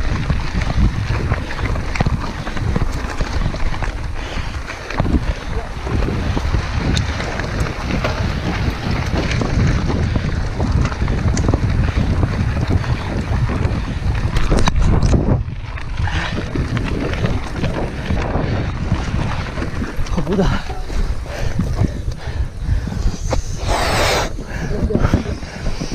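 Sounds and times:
bike rattles and knocks: 0.0s - 22.3s
bike tyres rumbling on gravel: 0.0s - 25.9s
wind buffeting microphone: 0.0s - 25.9s.

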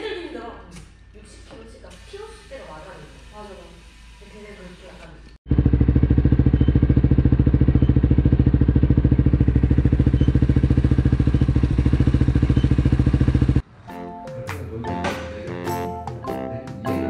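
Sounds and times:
motorcycle engine running: 5.4s - 13.6s.

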